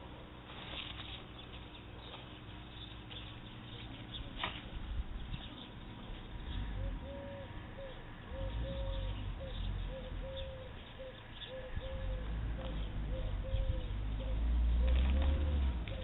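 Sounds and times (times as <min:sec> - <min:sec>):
wind rumble on microphone: 0:04.7 - 0:06.9, 0:11.7 - 0:16.0
bird calling: 0:06.5 - 0:16.0.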